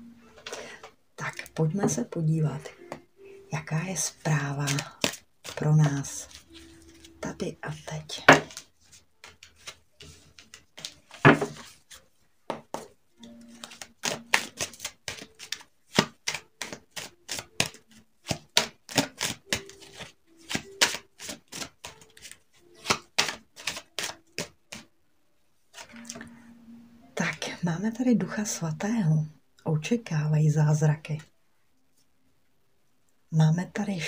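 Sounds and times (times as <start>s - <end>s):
cards being shuffled: 3.8s - 12.0s, 13.2s - 24.9s, 25.7s - 26.2s
card rustle: 4.3s - 12.2s, 13.2s - 24.9s, 25.7s - 26.2s.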